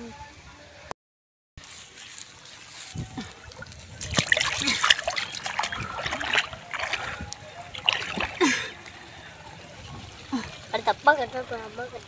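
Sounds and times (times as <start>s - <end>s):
hands splashing in muddy water: 1.9s - 9.0s
water trickling: 2.0s - 12.0s.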